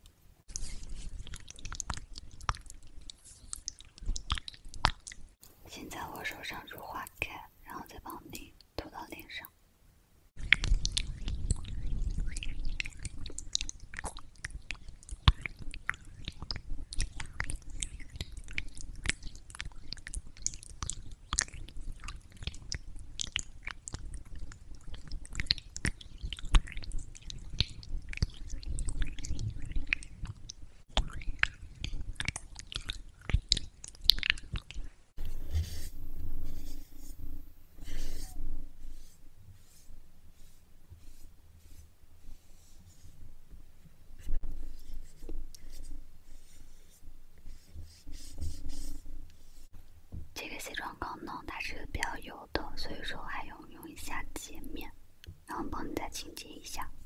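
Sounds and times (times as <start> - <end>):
tissue rubbing: 35.2 - 43.5, 44.2 - 49.8.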